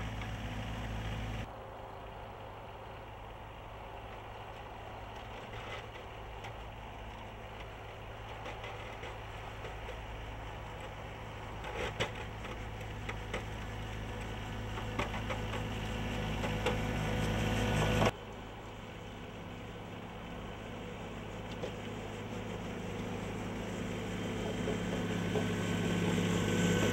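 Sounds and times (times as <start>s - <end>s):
tractor engine running: 0.0s - 26.9s
sharp clicks and knocks: 11.6s - 18.1s.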